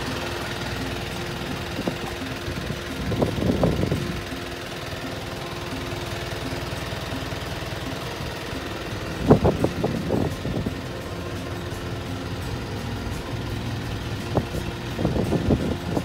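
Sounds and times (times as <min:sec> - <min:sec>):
truck engine idling: 0:00.0 - 0:16.0.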